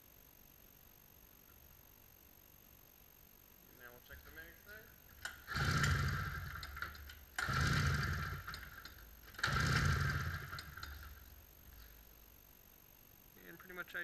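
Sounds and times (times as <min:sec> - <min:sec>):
engine compression pulses: 0:04.1 - 0:12.0
recoil pull starter whirring: 0:04.2 - 0:12.0.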